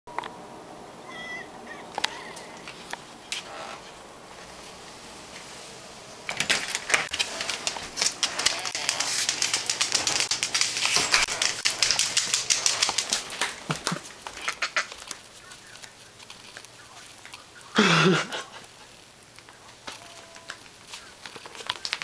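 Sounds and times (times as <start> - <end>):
dog claws clicking on hard floor: 6.3 - 17.4.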